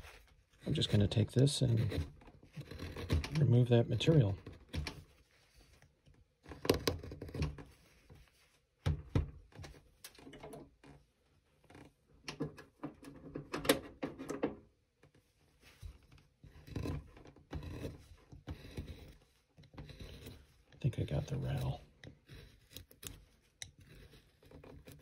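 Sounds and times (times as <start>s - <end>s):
knife carving wood: 0.0s - 5.2s, 6.4s - 7.7s, 16.1s - 25.0s.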